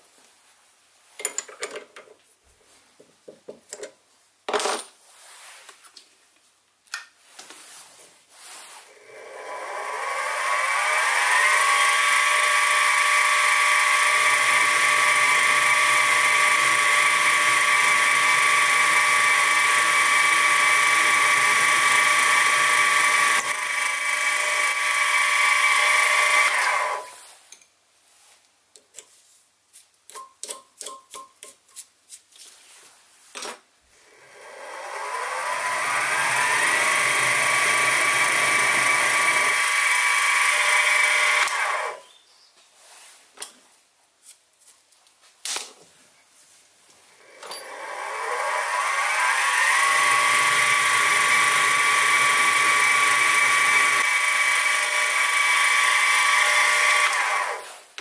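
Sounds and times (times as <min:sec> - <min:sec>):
mill spindle motor whining: 0:08.8 - 0:27.2, 0:33.7 - 0:42.0, 0:46.9 - 0:57.7.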